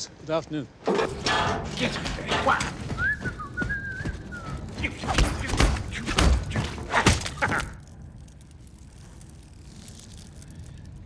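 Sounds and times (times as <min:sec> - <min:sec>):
metallic footsteps on steel deck: 0:00.8 - 0:06.9.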